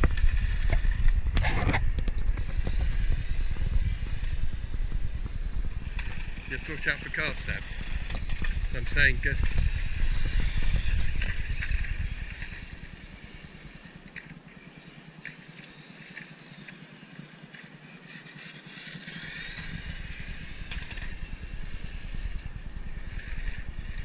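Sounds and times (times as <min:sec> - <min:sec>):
low rumble on microphone: 0:00.0 - 0:14.2, 0:19.4 - 0:24.0
toy car motor whining: 0:00.0 - 0:24.0.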